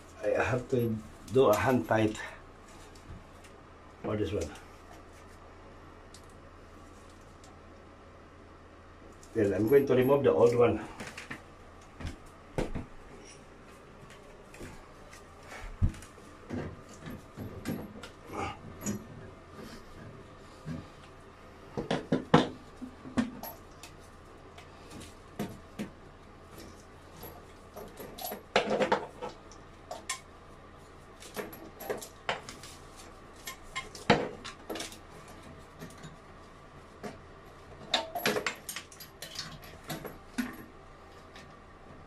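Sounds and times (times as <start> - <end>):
plumbing parts and tools clinking: 15.6 - 21.0, 21.8 - 24.1, 24.7 - 30.3, 31.2 - 36.4, 37.0 - 40.7.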